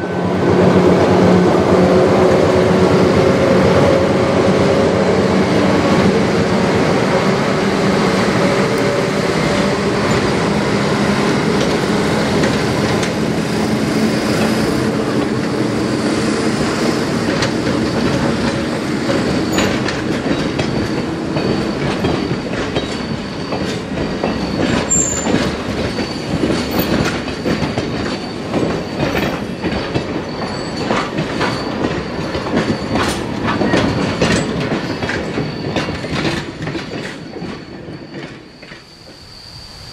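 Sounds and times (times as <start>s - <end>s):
train engine hum: 0.0s - 39.9s
high wheel squeal: 1.7s - 39.9s
wheels clicking over rail joints: 8.1s - 16.2s, 17.1s - 38.8s.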